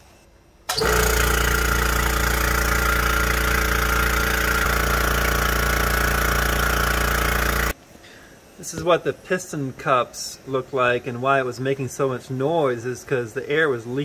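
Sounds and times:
air compressor running: 0.7 - 7.8.

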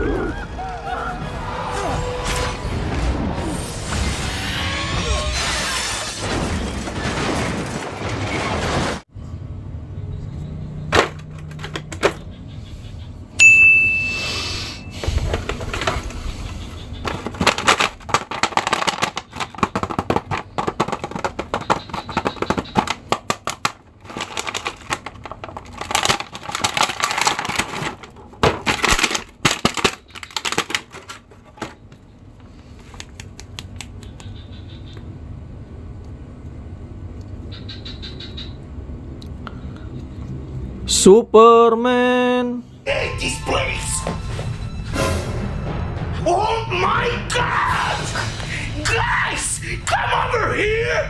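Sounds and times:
film sound effects: 0.0 - 9.0, 42.8 - 51.0
sharp hit with ringing ding: 13.4 - 14.9
plastic packaging crackling: 17.0 - 31.9.

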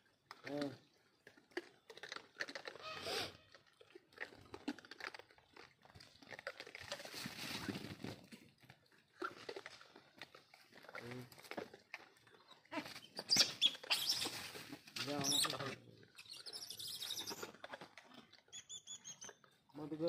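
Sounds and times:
animals crunching grain: 0.0 - 20.0.

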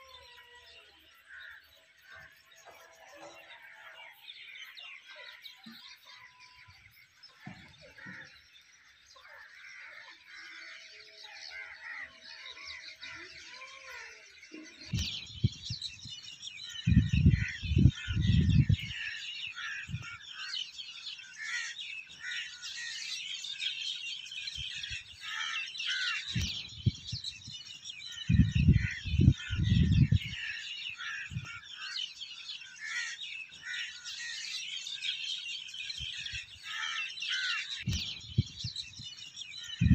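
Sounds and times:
birds chirping in chorus: 0.0 - 39.9
wind rumbling on microphone: 14.9 - 20.2, 26.3 - 31.6, 37.8 - 39.9.

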